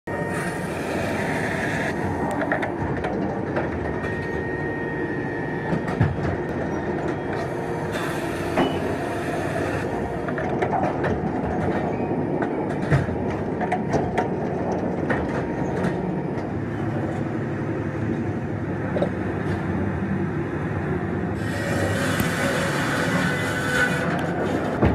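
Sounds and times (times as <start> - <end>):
sawmill machinery din: 0.1 - 2.9, 7.4 - 10.3, 21.4 - 24.9.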